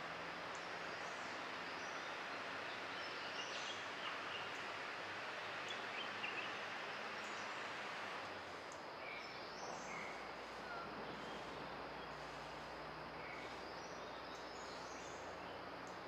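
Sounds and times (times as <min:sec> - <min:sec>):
steady forest hiss: 0:00.0 - 0:16.0
birds chirping: 0:05.3 - 0:07.7, 0:08.7 - 0:16.0.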